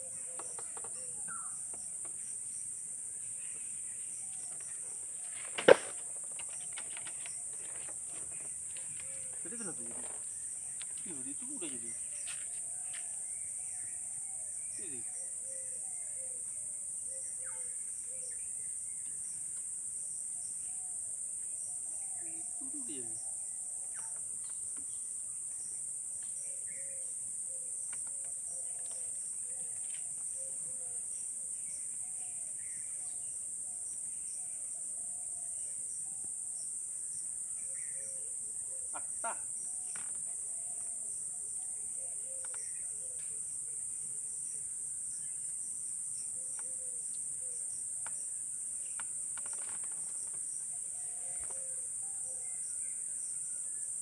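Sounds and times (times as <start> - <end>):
chorus of forest insects: 0.0 - 54.0
short calls: 38.9 - 40.1.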